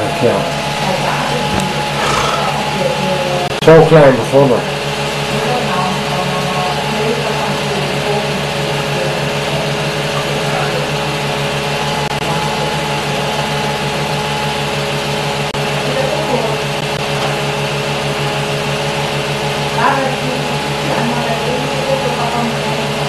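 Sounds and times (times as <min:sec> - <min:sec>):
film projector whirring: 0:00.5 - 0:03.1.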